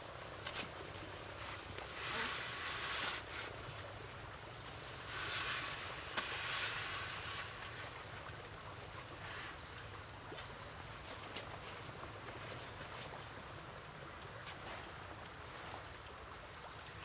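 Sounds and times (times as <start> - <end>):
dry straw thatch rustling: 0.1 - 8.0.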